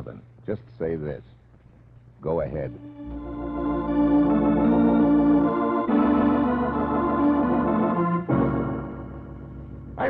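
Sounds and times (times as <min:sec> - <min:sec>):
organ chords: 0:02.2 - 0:10.0.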